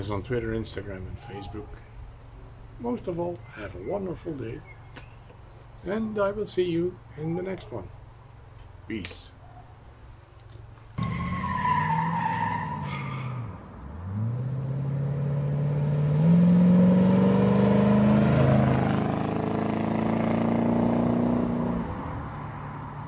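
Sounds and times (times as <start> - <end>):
car engine accelerating: 11.0 - 23.0.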